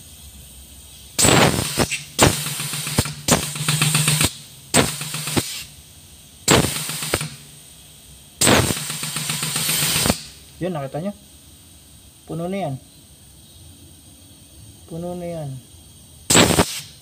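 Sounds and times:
air grease gun hissing and pumping: 0.0 - 12.4, 15.8 - 17.0.

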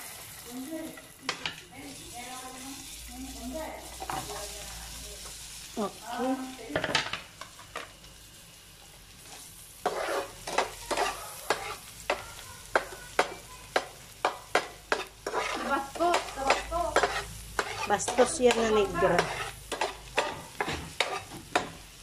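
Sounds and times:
garlic sizzling in oil: 0.0 - 22.0
spatula scraping a pan: 9.2 - 21.8.

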